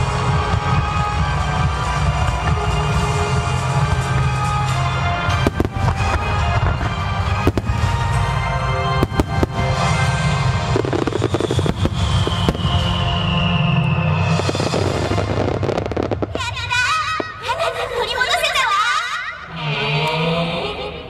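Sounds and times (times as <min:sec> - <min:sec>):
music soundtrack: 0:00.0 - 0:16.6
fireworks bangs and crackles: 0:00.0 - 0:17.8.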